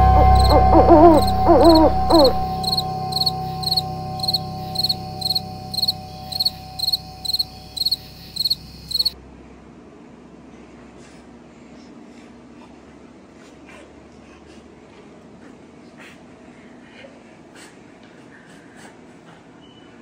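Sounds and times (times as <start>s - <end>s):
low rumble: 0.0s - 8.4s
cricket chirping: 0.0s - 9.2s
owl hooting: 0.0s - 9.2s.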